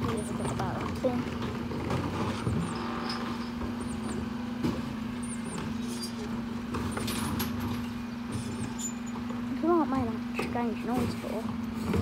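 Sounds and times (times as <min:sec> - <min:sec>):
lorry engine running: 0:00.0 - 0:12.0.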